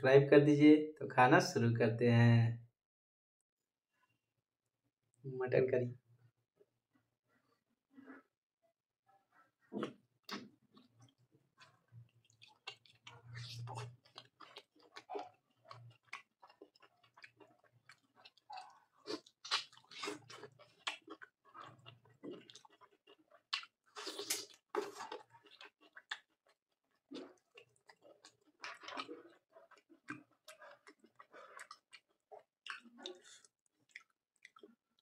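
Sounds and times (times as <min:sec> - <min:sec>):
chewing and wet mouth sounds: 0:09.8 - 0:35.0.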